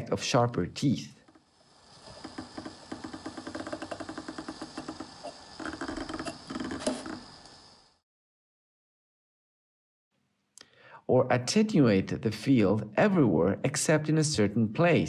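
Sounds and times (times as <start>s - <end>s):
faint high whine: 0.0s - 8.0s.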